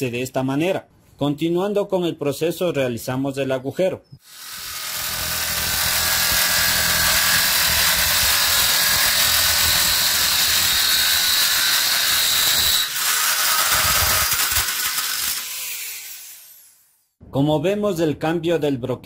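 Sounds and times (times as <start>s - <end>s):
electric drill drilling metal: 4.2s - 17.0s
high whine of cutting: 4.3s - 16.8s.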